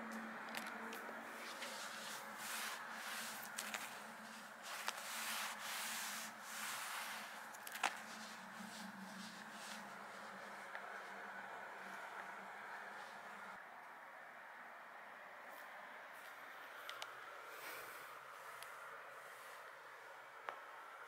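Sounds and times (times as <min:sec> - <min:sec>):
faint steady hum: 0:00.0 - 0:21.0
hand stroking a rug: 0:01.3 - 0:11.2.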